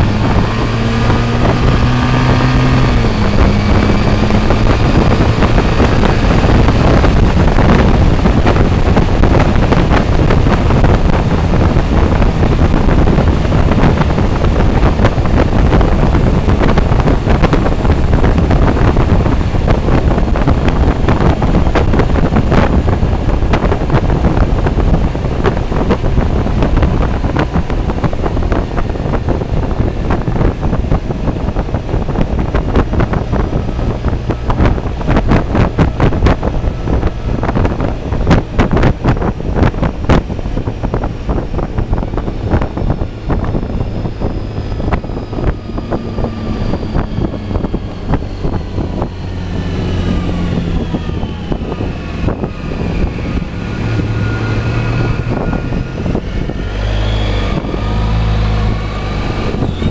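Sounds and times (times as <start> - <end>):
scooter engine: 0.0 - 58.0, 58.6 - 59.9
road noise: 0.0 - 59.9
wind buffeting microphone: 0.0 - 59.9.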